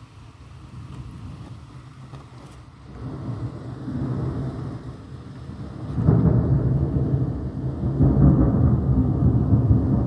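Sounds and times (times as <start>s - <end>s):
thunder rumbling: 2.8s - 10.0s.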